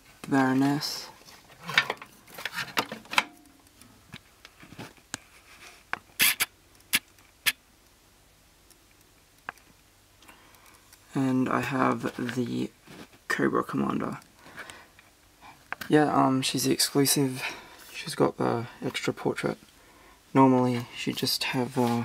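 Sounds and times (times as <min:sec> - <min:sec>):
sharp clicks and light taps: 0:08.6 - 0:11.0.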